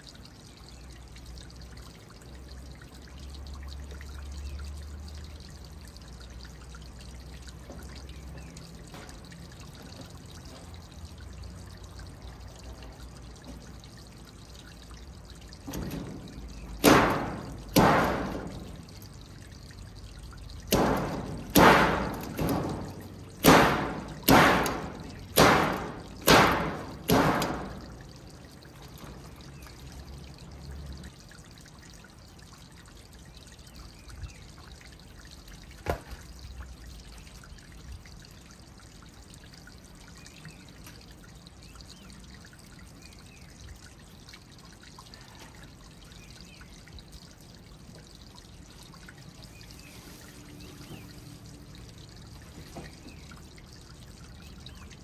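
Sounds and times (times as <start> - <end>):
sharp strikes: 23.4 - 27.8.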